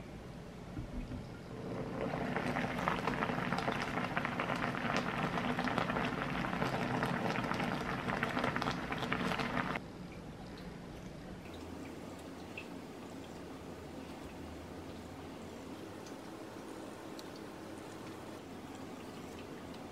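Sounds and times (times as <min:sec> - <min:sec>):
water boiling and bubbling: 0:00.7 - 0:19.9.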